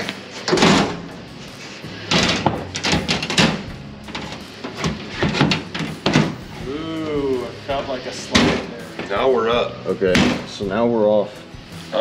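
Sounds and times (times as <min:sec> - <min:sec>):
sheet metal scraping and knocking: 0:01.9 - 0:06.6.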